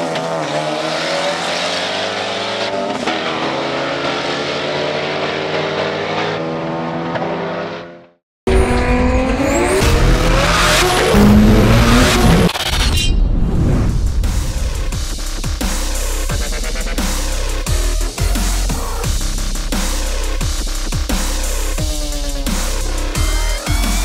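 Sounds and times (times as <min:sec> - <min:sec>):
car engine under power: 0:08.5 - 0:12.8
electronic dance music: 0:14.3 - 0:24.0.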